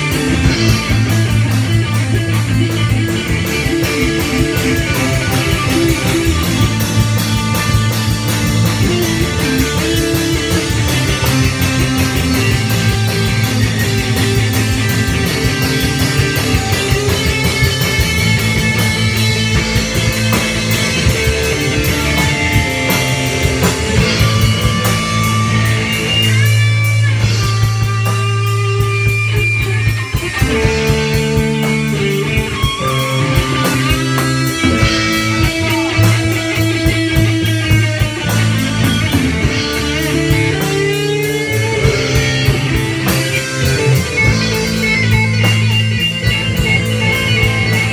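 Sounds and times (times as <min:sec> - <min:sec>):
drum kit: 0:00.0 - 0:47.9
electric guitars: 0:00.0 - 0:47.9
lead guitar bending notes: 0:00.0 - 0:47.9.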